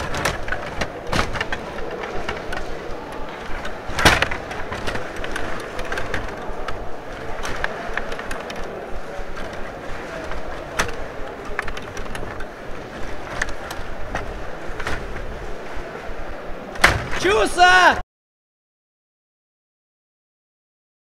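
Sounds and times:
plastic clicks and clacks: 0.0s - 15.3s
background clatter and din: 0.0s - 17.3s.

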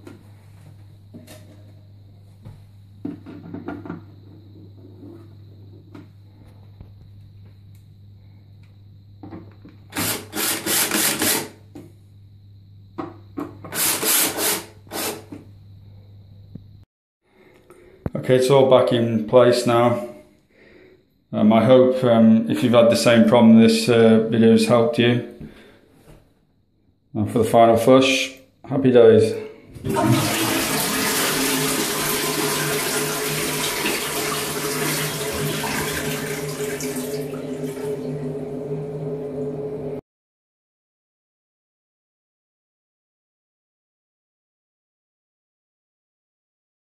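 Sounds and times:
cordless drill driving screws: 9.9s - 11.5s
toilet flushing: 29.7s - 40.0s.

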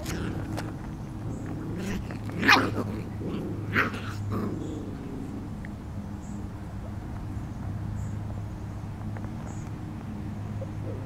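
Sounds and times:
puppies play-wrestling: 0.0s - 5.6s
low hum: 0.0s - 11.0s.

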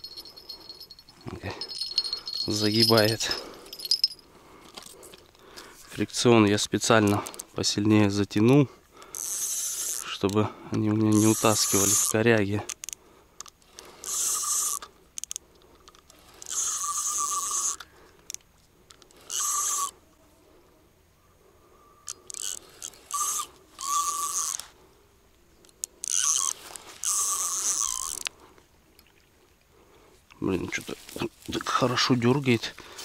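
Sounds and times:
spinning reel drag buzzing: 9.1s - 10.1s, 11.1s - 12.2s, 13.8s - 15.4s, 16.2s - 17.9s, 19.0s - 19.9s, 22.0s - 24.7s, 26.0s - 28.3s.

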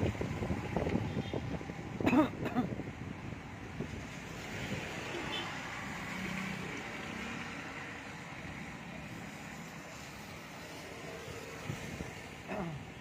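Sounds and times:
vehicle engine and tyre noise: 0.0s - 13.0s.

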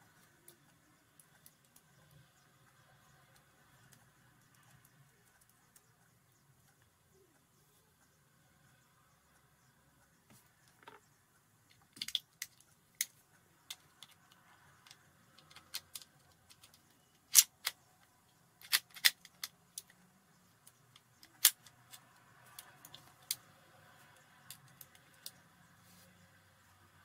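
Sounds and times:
metal pistol parts clicking: 11.7s - 17.8s, 18.6s - 20.0s, 20.9s - 23.4s.

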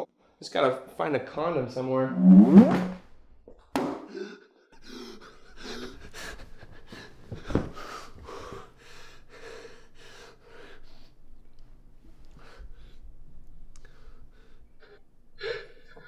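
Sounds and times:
man panting heavily: 4.8s - 11.2s.

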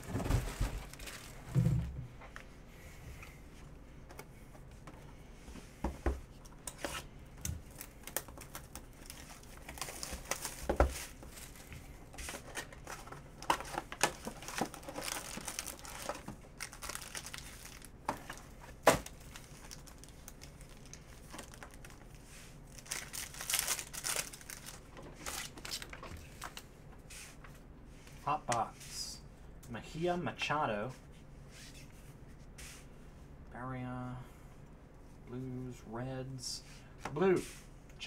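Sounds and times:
foil packs crinkling and tearing: 0.0s - 1.5s, 7.6s - 11.7s, 12.4s - 26.6s.

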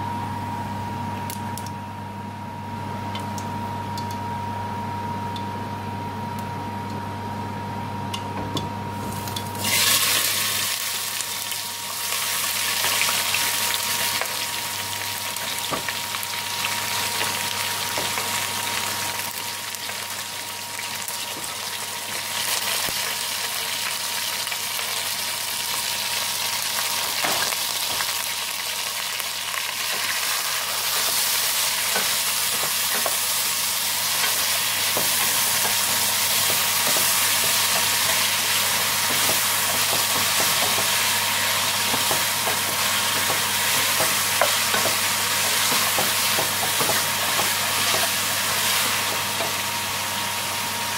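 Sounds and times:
onions sizzling in oil: 9.0s - 50.9s.

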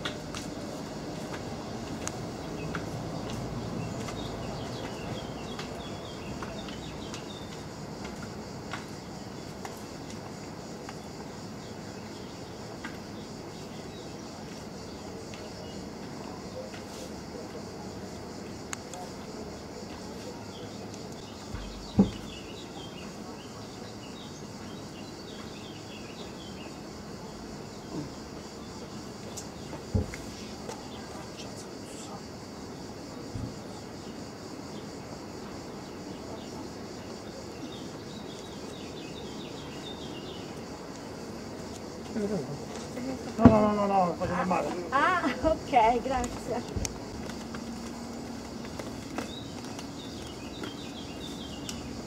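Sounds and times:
outdoor background hum: 0.0s - 52.0s
small birds chirping: 2.0s - 7.9s, 20.2s - 27.0s, 35.8s - 41.2s, 45.7s - 52.0s
sharp thump: 21.5s - 22.3s.

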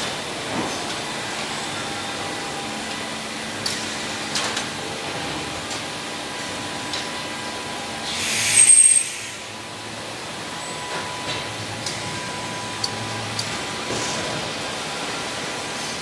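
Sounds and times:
machinery hum: 0.0s - 16.0s
compressed air hiss: 8.1s - 9.6s.

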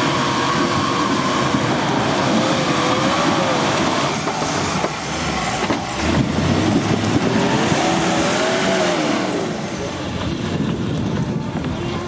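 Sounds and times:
engine revving hard: 6.0s - 9.6s.

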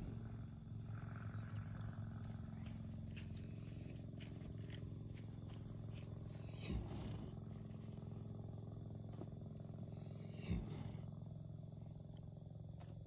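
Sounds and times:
steady low hum: 0.0s - 13.0s
horse grunting: 5.8s - 8.1s, 9.6s - 11.2s.

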